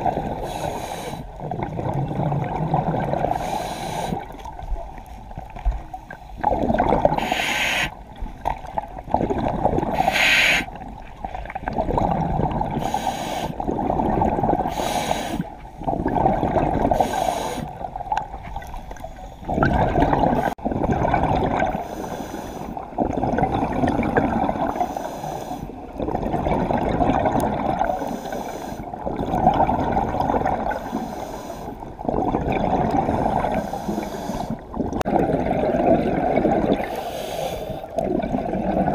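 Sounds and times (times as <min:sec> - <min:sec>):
exhaled bubbling gurgles: 0:00.0 - 0:38.9
regulator inhale hisses: 0:00.4 - 0:01.3, 0:03.3 - 0:04.2, 0:07.2 - 0:08.0, 0:10.0 - 0:10.7, 0:12.8 - 0:13.6, 0:14.7 - 0:15.5, 0:17.0 - 0:17.7, 0:21.8 - 0:22.8, 0:24.7 - 0:25.8, 0:28.0 - 0:28.9, 0:30.8 - 0:31.9, 0:33.5 - 0:34.6, 0:36.9 - 0:37.9.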